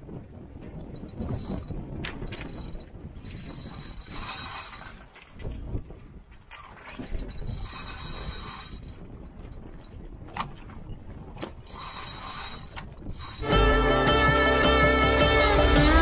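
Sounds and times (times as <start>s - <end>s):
wind and water rushing along hull: 0.0s - 16.0s
music: 13.4s - 16.0s.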